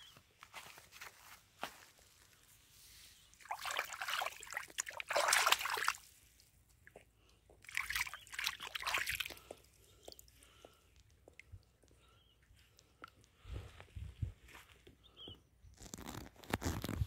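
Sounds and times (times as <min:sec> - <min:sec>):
muddy water sloshing and trickling: 0:02.9 - 0:11.9.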